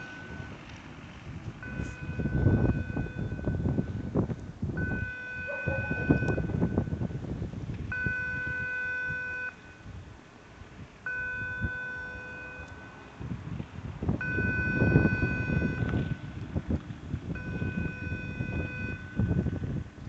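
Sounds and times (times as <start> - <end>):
electronic warning beeps: 0.0 - 0.6, 1.6 - 4.0, 4.8 - 6.9, 7.9 - 9.6, 11.1 - 13.0, 14.2 - 16.2, 17.4 - 19.5
wind buffeting microphone: 0.0 - 20.0.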